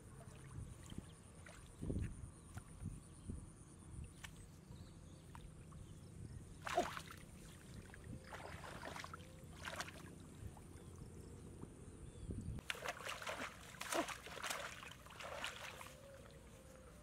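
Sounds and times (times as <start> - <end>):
hands splashing in shallow water: 6.6 - 10.2, 12.6 - 16.4.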